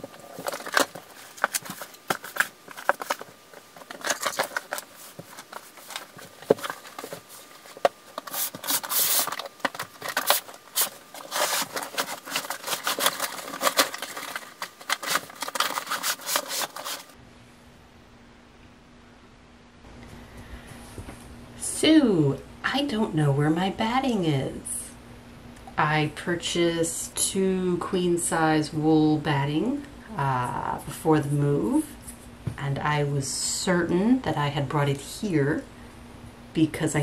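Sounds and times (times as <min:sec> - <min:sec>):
rummaging through storage bins: 0:00.0 - 0:17.2
faint steady hum: 0:00.0 - 0:37.0.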